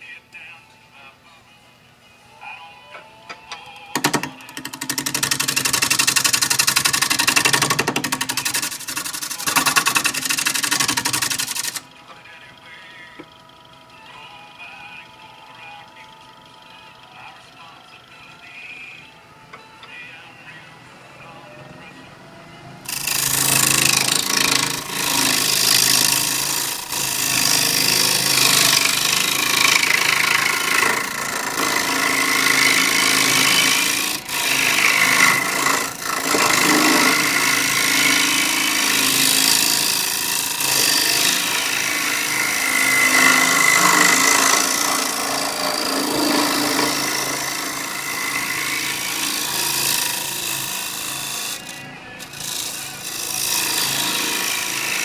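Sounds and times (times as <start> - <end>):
lathe gouge scraping wood: 4.0 - 11.9, 22.9 - 55.0.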